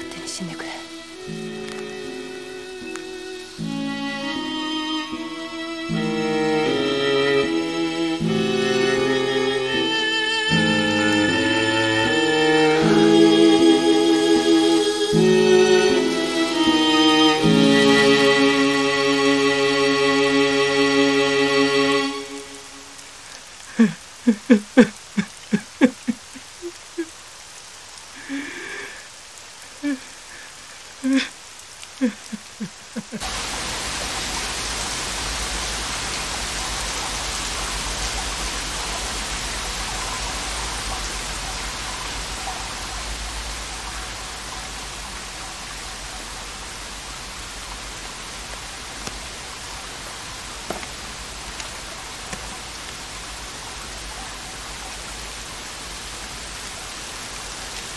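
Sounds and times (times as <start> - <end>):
heavy rain: 0.0 - 57.9
man sobbing and crying out: 23.7 - 27.2, 29.8 - 30.2, 31.0 - 31.4, 32.0 - 33.2.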